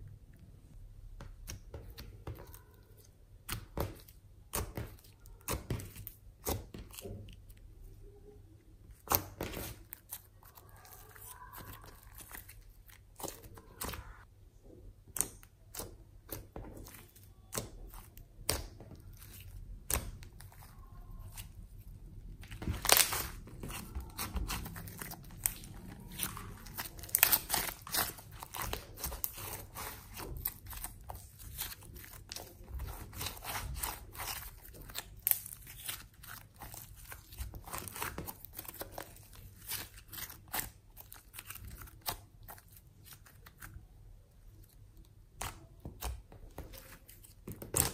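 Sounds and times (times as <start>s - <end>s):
sticky slime crackles and pops: 8.9s - 14.3s, 15.0s - 47.9s.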